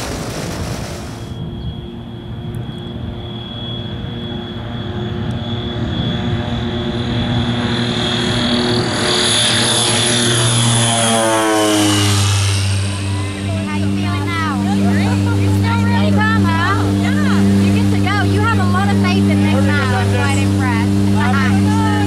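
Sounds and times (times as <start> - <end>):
turboprop airplane passing: 0.0 - 22.0.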